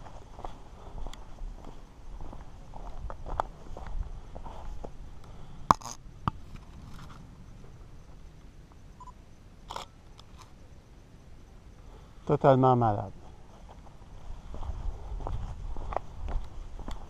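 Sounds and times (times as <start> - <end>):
camera shutter clicks: 9.7 - 10.4.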